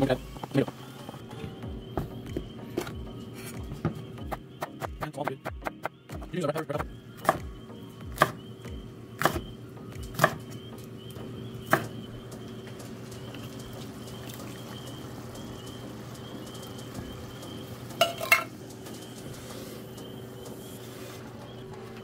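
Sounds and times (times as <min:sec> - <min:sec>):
knife chopping on wooden board: 0:09.2 - 0:09.5, 0:10.1 - 0:10.4.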